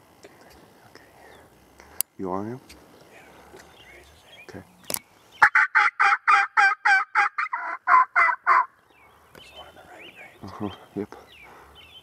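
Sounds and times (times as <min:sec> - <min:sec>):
turkey yelping: 0:05.4 - 0:08.7.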